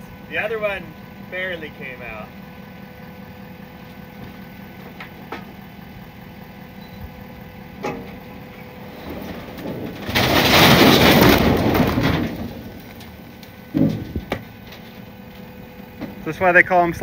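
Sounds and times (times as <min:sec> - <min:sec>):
low engine hum: 0:00.0 - 0:17.0
camper scraping off trailer: 0:07.8 - 0:15.2.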